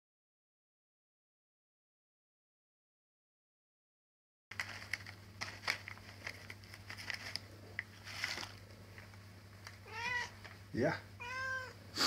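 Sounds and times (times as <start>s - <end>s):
cat crunching dry treats: 4.5s - 10.4s.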